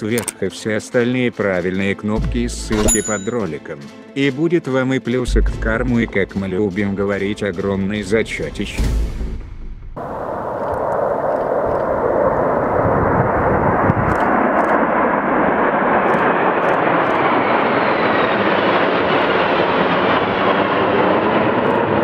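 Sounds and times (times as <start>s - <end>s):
jet fighters flying over: 10.0s - 22.0s.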